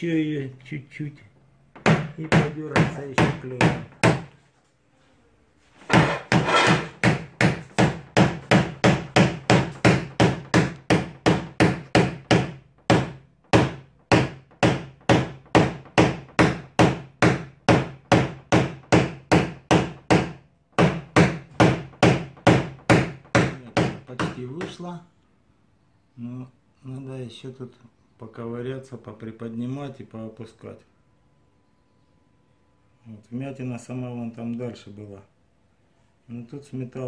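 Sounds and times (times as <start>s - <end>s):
hammer tapping punch on sheet metal: 5.9s - 24.8s.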